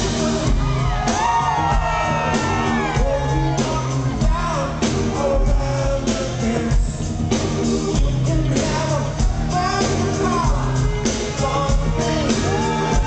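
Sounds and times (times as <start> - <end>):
live rock band playing: 0.0 - 13.0
man singing into a microphone: 3.0 - 13.0.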